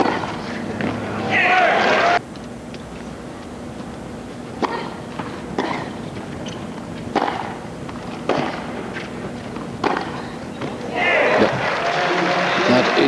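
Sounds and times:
tennis ball hit with rackets: 0.0s - 1.0s, 7.1s - 9.1s, 9.8s - 10.2s.

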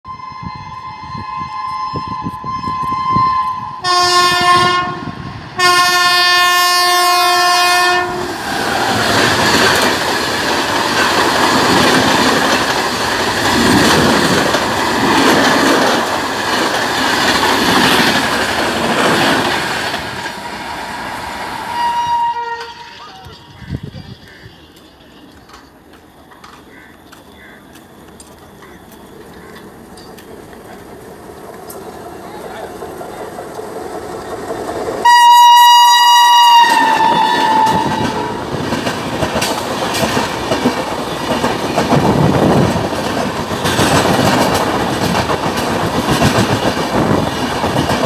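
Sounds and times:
train horn blasts: 0.1s - 8.3s, 21.7s - 24.5s, 35.0s - 38.4s
train coaches rushing past: 0.4s - 48.0s.

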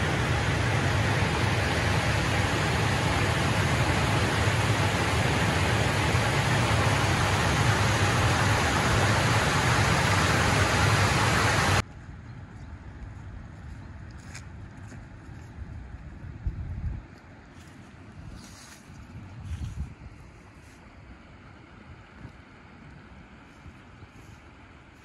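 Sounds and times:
river flowing: 0.0s - 11.8s
water rushing over weir: 0.0s - 11.8s.

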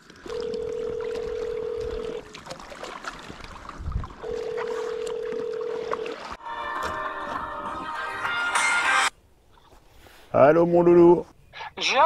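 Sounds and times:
water and kayak noise: 0.0s - 10.9s
phone ringback beep: 0.3s - 2.2s, 4.2s - 6.1s.

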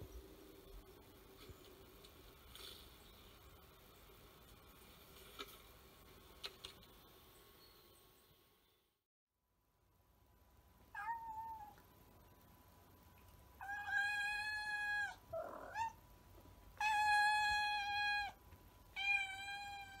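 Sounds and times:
cat meowing: 10.9s - 11.8s, 13.6s - 16.0s, 19.0s - 20.0s.

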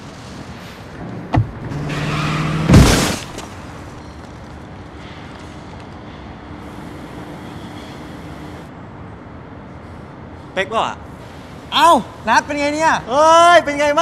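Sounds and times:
car crashing into wall: 1.4s - 4.0s.

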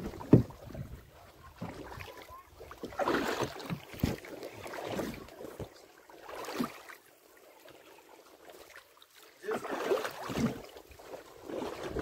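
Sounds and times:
fish splashing in water: 1.5s - 5.3s, 9.5s - 10.8s.

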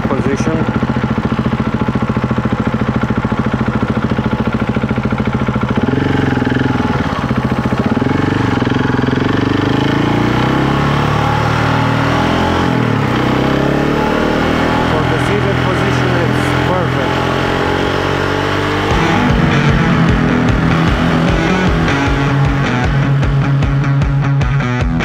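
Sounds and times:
motorcycle engine revving: 0.0s - 25.0s.

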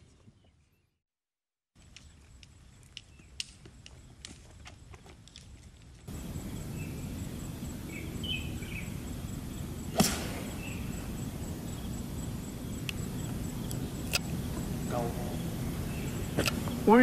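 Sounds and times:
outdoor background noise: 1.8s - 17.0s
golf club striking ball: 9.8s - 11.2s.

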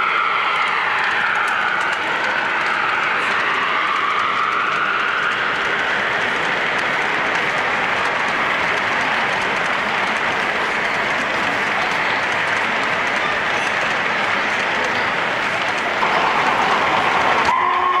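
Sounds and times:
model train wheels rolling: 0.0s - 18.0s.

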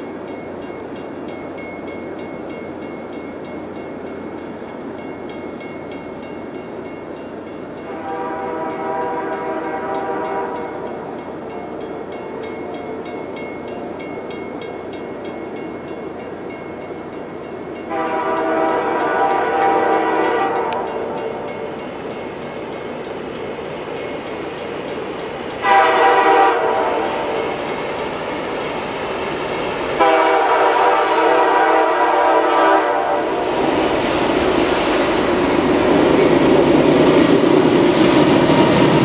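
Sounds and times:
crossing bell ringing: 0.0s - 33.4s
freight train rumble: 0.0s - 39.0s
locomotive horn blasts: 7.8s - 11.1s, 17.9s - 21.5s, 25.6s - 27.6s, 30.0s - 33.4s.

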